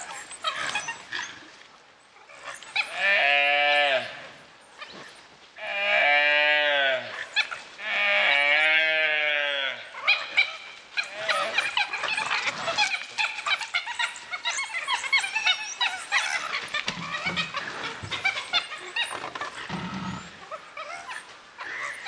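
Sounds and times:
gaur bawling calls: 0:09.8 - 0:22.0.

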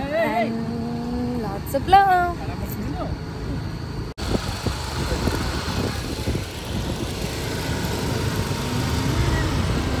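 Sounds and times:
motor scooter riding: 0:04.2 - 0:10.0
wind rumbling on microphone: 0:04.2 - 0:10.0.

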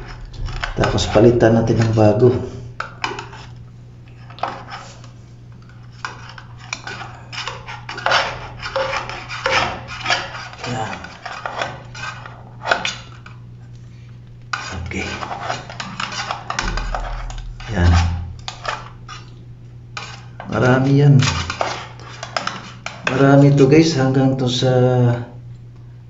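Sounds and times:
metal scraper scraping sealant: 0:00.0 - 0:03.5, 0:04.3 - 0:13.1, 0:14.5 - 0:19.3, 0:20.0 - 0:23.3.

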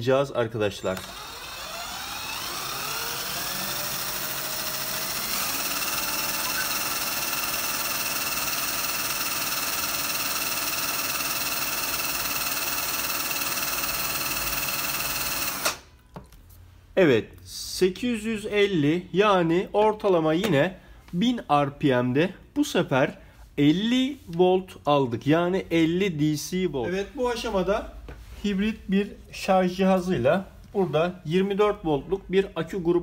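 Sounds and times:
cordless drill whine: 0:00.8 - 0:15.8.

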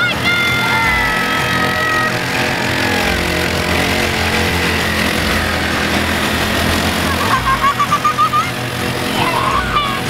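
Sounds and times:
small petrol engines buzzing: 0:00.0 - 0:10.0
child laughing: 0:06.8 - 0:10.0.

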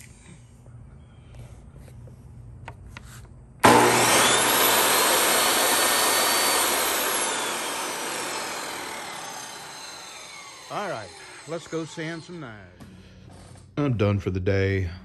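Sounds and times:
table saw motor whining: 0:03.6 - 0:13.7.

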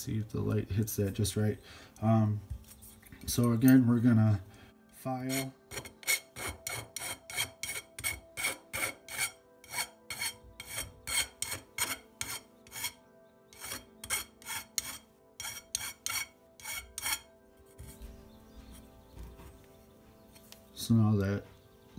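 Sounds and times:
file rasping on copper tube: 0:05.2 - 0:13.0, 0:13.6 - 0:18.0.

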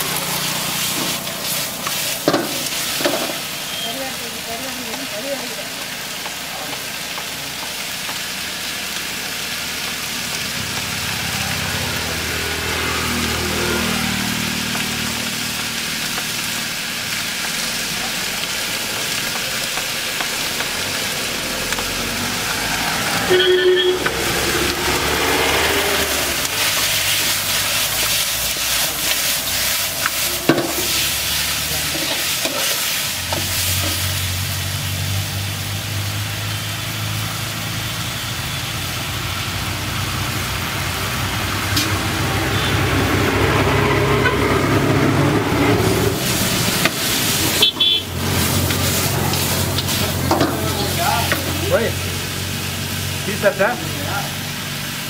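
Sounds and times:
chicken sizzling in a wok: 0:00.0 - 0:55.0
steel ladle stirring in a wok: 0:00.2 - 0:03.5, 0:26.2 - 0:34.4.

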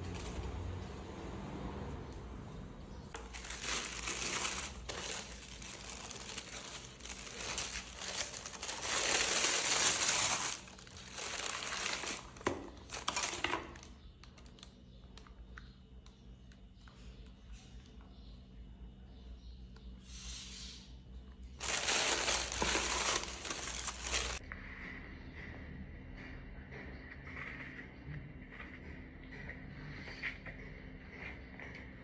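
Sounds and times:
faint handling sounds: 0:02.9 - 0:18.0, 0:21.5 - 0:24.4
tissue paper rustling: 0:03.2 - 0:13.5, 0:21.6 - 0:24.4.

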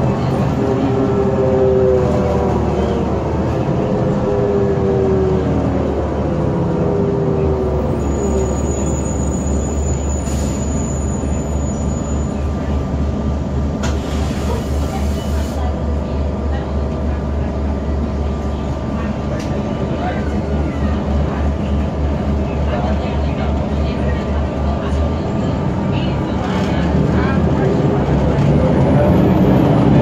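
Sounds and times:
bus engine whining down: 0:00.0 - 0:30.0
faint high squeal: 0:07.9 - 0:12.5.

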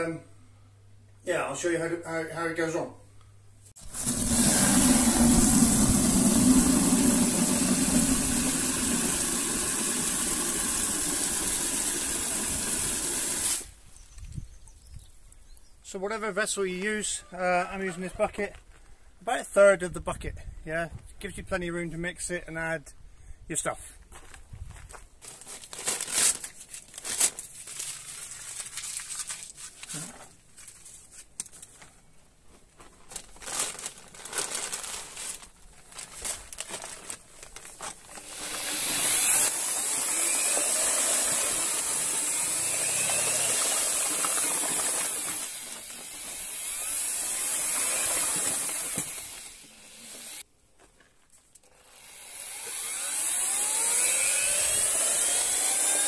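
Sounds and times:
electric drill mixer running: 0:03.8 - 0:13.7, 0:38.2 - 0:50.4, 0:51.8 - 0:56.0
powder pouring into bucket: 0:03.8 - 0:13.7, 0:33.3 - 0:49.4
paper sack rustling: 0:24.8 - 0:39.0.

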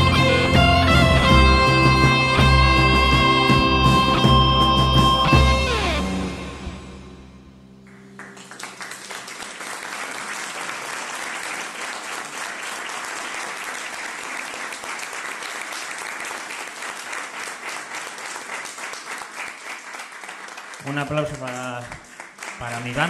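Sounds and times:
electric guitar chord: 0:00.0 - 0:09.0
audience applause: 0:07.9 - 0:23.0.

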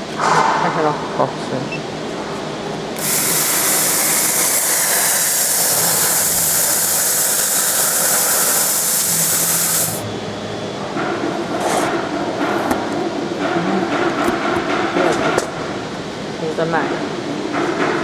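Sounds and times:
steady machine hum: 0:00.0 - 0:18.0
air hissing from nozzle: 0:03.0 - 0:10.0.

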